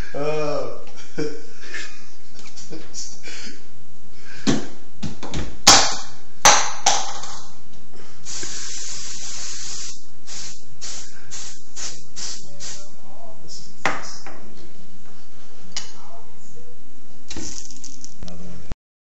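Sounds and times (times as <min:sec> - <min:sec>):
cooking spray hissing: 0:08.2 - 0:13.0.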